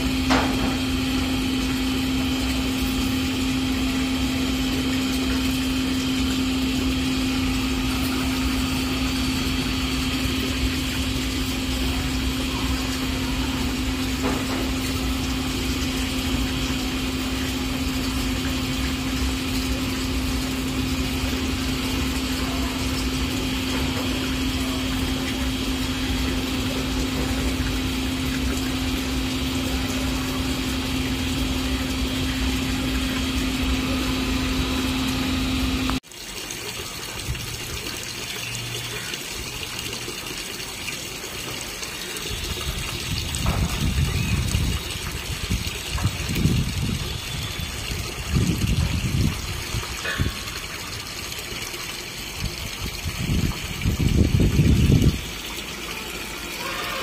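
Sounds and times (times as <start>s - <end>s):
machine hum: 0.0s - 36.0s.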